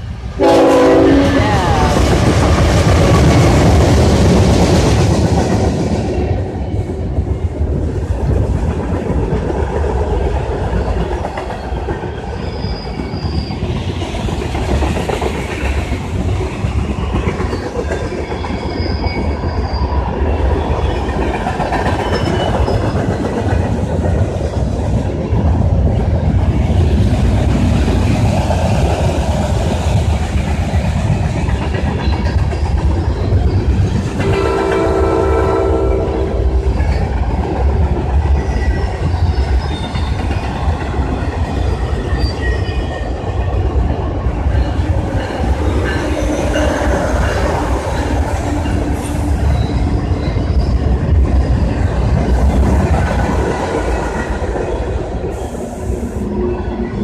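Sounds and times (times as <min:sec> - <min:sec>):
freight train rumbling past: 0:00.0 - 0:57.0
train horn blast: 0:00.4 - 0:02.1, 0:34.2 - 0:36.8.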